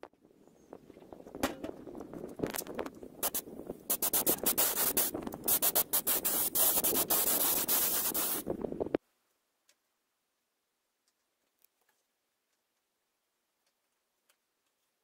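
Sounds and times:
air spray gun hissing: 0:03.2 - 0:08.5.

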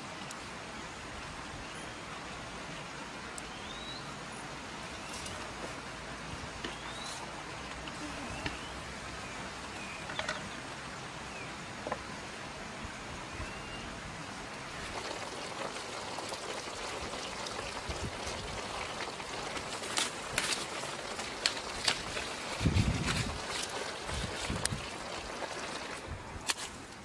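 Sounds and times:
bird chirping: 0:03.4 - 0:04.4, 0:06.7 - 0:07.2, 0:08.1 - 0:10.6.

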